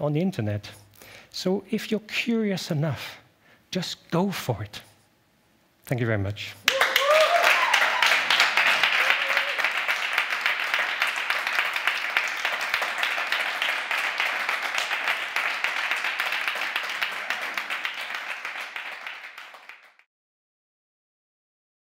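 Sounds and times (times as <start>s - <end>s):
audience applauding: 6.7s - 20.1s.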